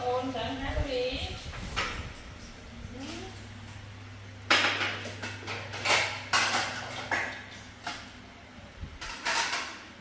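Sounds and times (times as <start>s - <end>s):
dishes clattering in sink: 4.4s - 8.1s, 9.0s - 9.9s.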